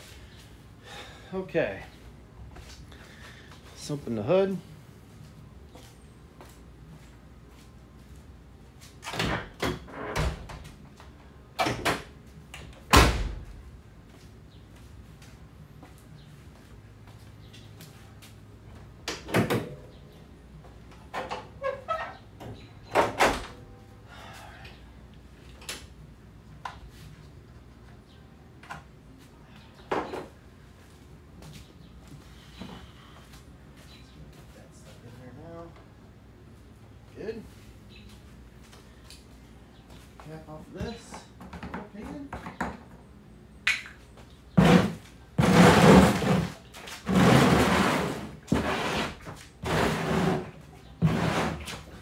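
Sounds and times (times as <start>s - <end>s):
gear scraping on concrete floor: 44.6s - 51.9s.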